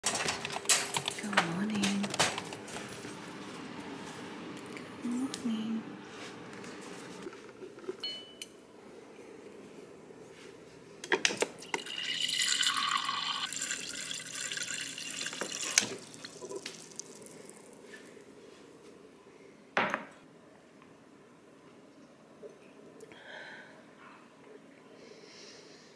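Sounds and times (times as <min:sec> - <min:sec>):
water pouring into glass with ice: 0:11.6 - 0:17.5.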